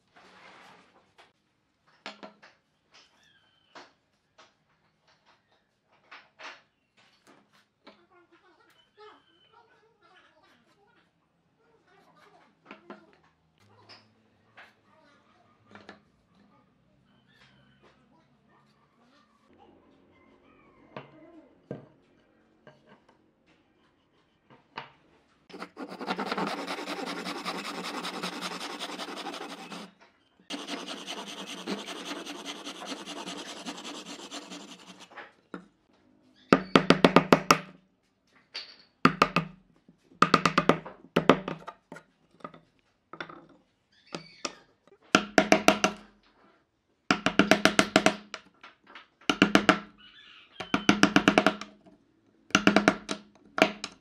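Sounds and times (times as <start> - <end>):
saw cutting wood: 25.5 - 29.9, 30.5 - 35.1.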